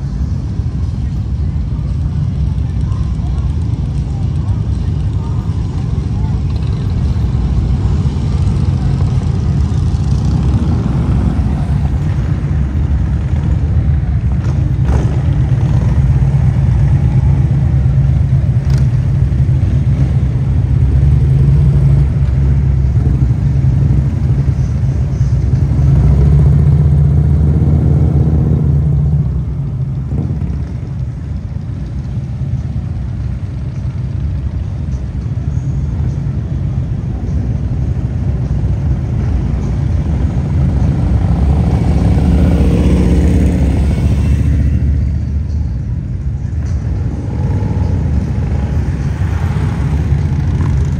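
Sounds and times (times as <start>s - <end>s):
motorcycles riding by: 0.0s - 50.9s.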